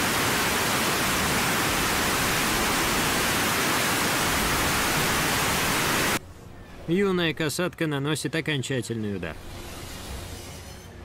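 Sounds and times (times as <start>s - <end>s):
rushing water: 0.0s - 6.2s.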